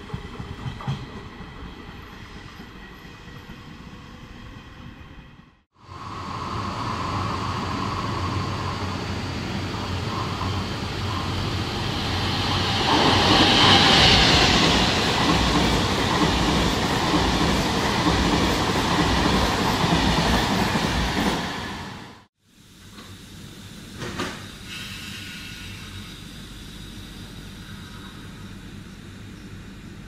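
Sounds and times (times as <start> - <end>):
train wheels clacking over rails: 0.0 - 1.7, 9.7 - 22.0
train hiss: 5.8 - 29.3.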